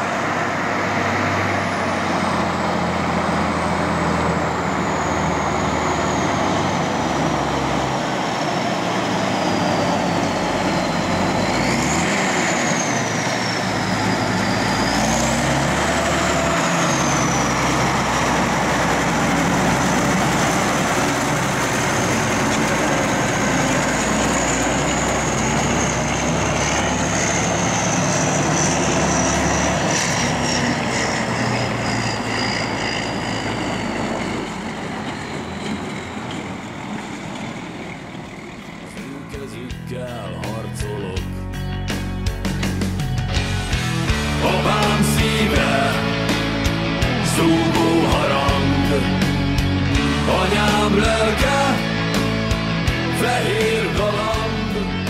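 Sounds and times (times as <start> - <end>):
high engine whistle: 0.0 - 37.1
tractor diesel engine running: 0.0 - 55.0.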